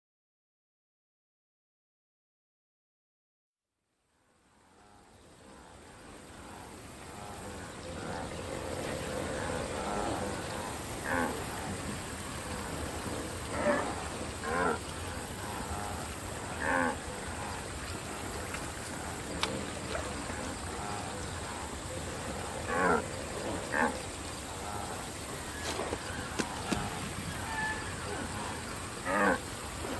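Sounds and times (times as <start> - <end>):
open-air background: 3.9 - 29.9
wildebeest low calls: 9.1 - 11.9, 13.4 - 18.2, 22.3 - 29.9.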